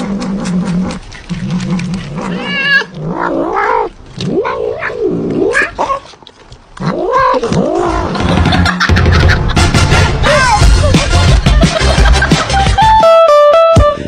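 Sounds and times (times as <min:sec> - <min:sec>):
cat yowling and meowing: 0:02.2 - 0:03.7, 0:06.9 - 0:07.6.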